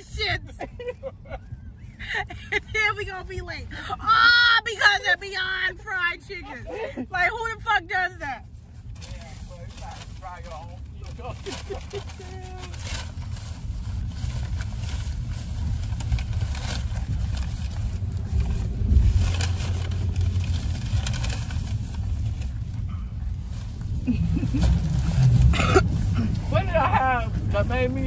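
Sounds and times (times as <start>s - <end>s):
car engine rumble: 0.0s - 28.0s
road noise: 0.0s - 28.0s
paper bag crinkling: 9.6s - 22.6s.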